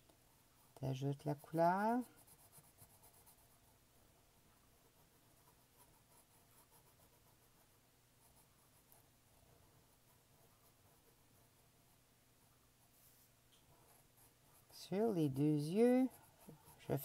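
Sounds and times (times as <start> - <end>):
marker scratching on paper: 0.7 - 3.7, 4.8 - 9.1, 12.8 - 17.0.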